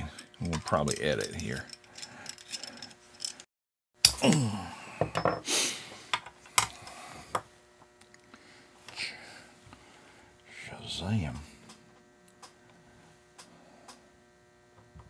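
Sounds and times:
metal parts clicking on workbench: 0:00.0 - 0:03.4.

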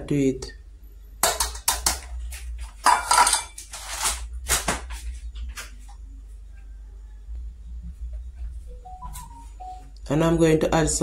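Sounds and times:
utensils clattering in metal bowl: 0:02.8 - 0:04.2.

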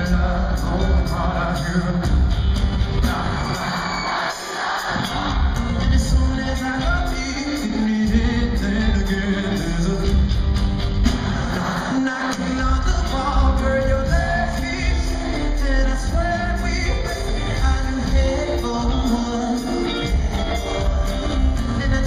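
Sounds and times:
man singing into a microphone: 0:00.0 - 0:02.3, 0:05.8 - 0:10.4, 0:11.7 - 0:22.0
band with heavy bass: 0:00.0 - 0:22.0.

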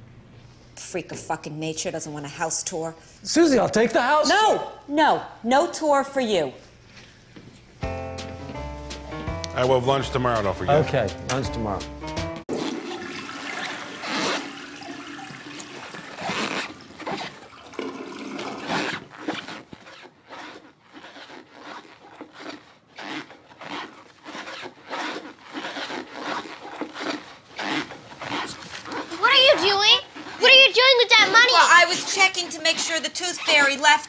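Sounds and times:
shoe inserts squeaking with steps: 0:14.0 - 0:17.7, 0:18.4 - 0:34.0.

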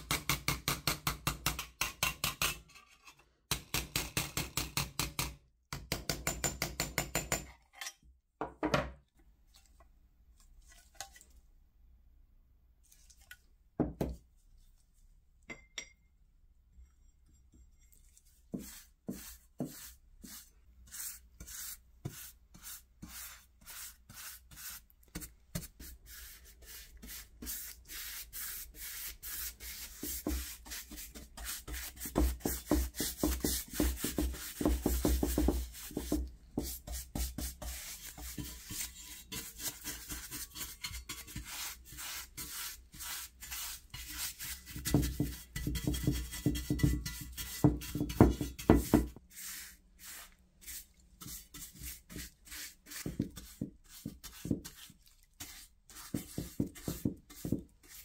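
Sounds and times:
paintbrush scrubbing on metal: 0:17.6 - 0:58.0.

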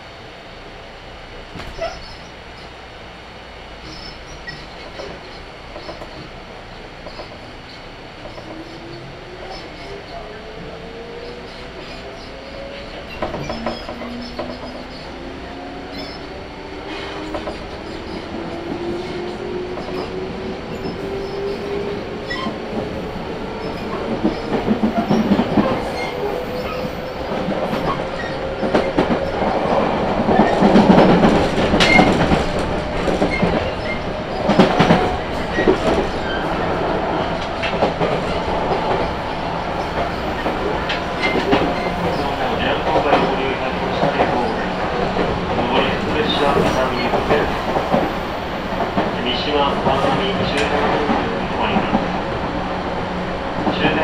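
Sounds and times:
wheels clacking over rail joints: 0:11.2 - 0:15.2, 0:16.9 - 0:52.5.

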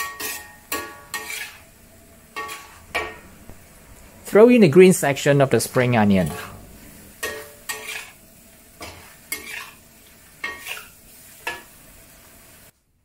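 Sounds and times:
metal spatula scraping wok: 0:00.0 - 0:03.5, 0:06.0 - 0:11.8
food sizzling: 0:00.0 - 0:12.8.

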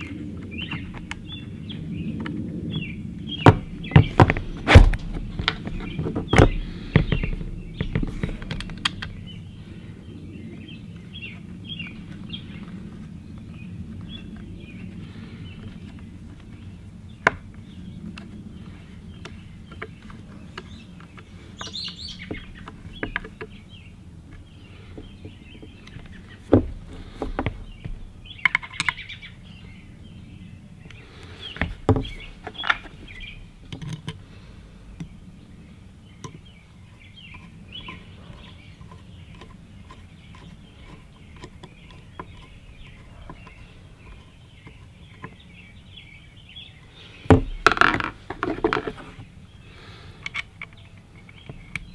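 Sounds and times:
small birds chirping: 0:00.0 - 0:51.9
air rifle knocks and clicks: 0:03.4 - 0:09.4.

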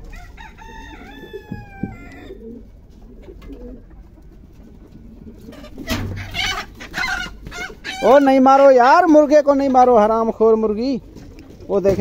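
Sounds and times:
rooster crowing: 0:00.0 - 0:02.6.

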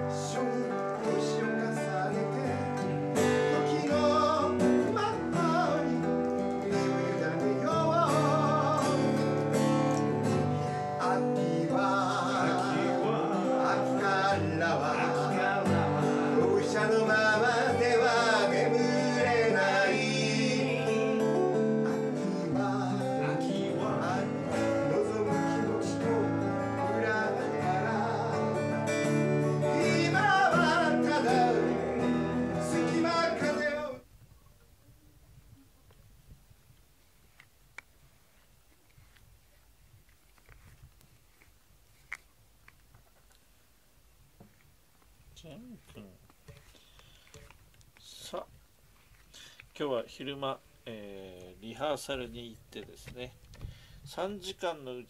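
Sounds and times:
acoustic guitars strummed: 0:00.0 - 0:34.1
men singing with vibrato: 0:00.0 - 0:34.1.

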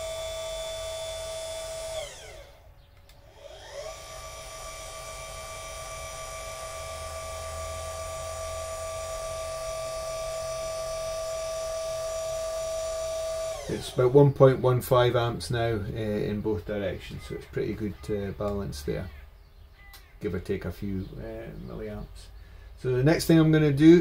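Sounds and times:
motor whining: 0:00.0 - 0:16.7.

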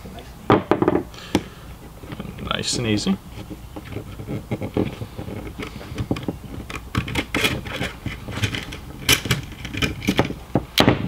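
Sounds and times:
clicks and scrapes of metal on plastic: 0:01.4 - 0:10.9.

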